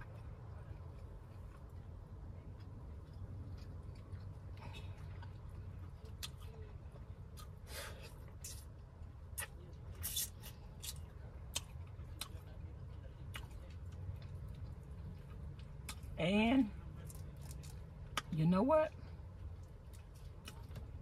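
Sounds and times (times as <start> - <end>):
chewing: 0.0 - 16.2, 19.0 - 21.0
steady low hum: 0.0 - 21.0.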